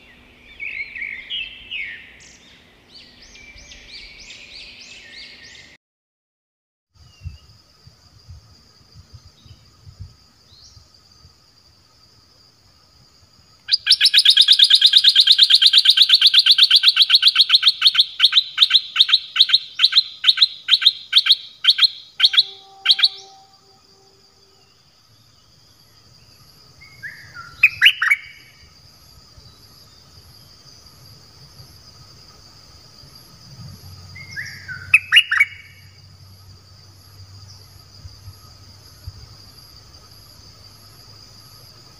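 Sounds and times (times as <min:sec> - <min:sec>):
high insect whine: 0:00.0 - 0:05.8, 0:07.0 - 0:41.9
bulbul calling: 0:13.7 - 0:23.8, 0:26.8 - 0:28.5, 0:34.2 - 0:35.9.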